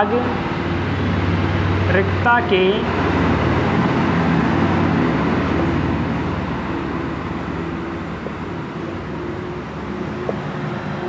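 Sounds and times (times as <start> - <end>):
machine hum: 0.0 - 11.0
rushing noise: 0.0 - 11.0.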